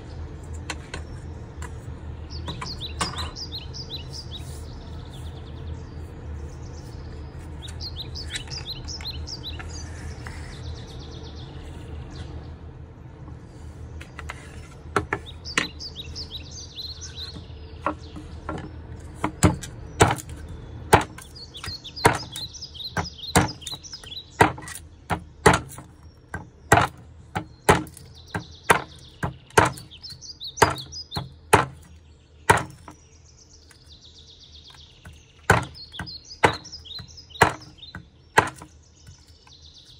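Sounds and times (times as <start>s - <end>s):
birds chirping: 0.0s - 39.9s
low steady hum: 0.0s - 39.9s
knife chopping into wood: 17.3s - 31.9s, 32.5s - 33.0s, 35.0s - 39.5s.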